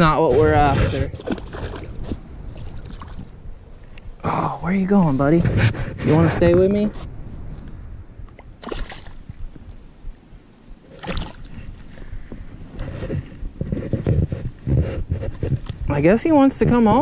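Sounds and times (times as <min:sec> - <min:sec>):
stick splashing in water: 0:08.6 - 0:09.2, 0:11.0 - 0:11.5.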